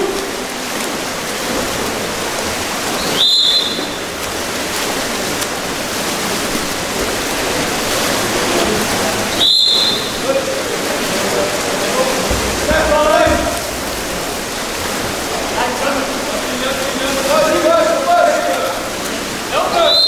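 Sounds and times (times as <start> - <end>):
pool water splashing: 0.0 - 20.0
referee's whistle blasts: 3.0 - 4.0, 9.4 - 10.2, 19.7 - 20.0.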